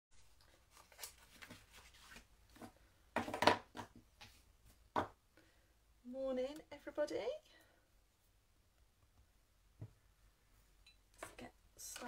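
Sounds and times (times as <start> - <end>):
objects handled on a desk: 0.4 - 5.2.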